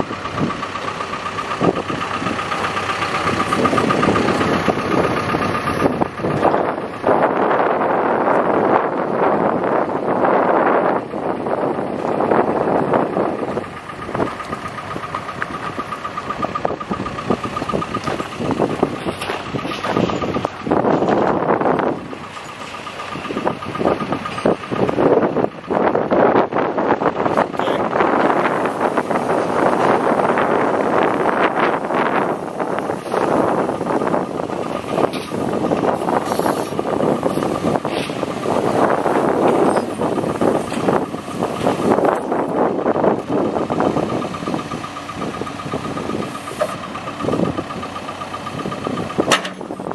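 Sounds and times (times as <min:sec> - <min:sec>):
diesel engine idling: 0:00.0 - 0:49.9
wind on microphone: 0:03.2 - 0:14.6, 0:23.2 - 0:46.4.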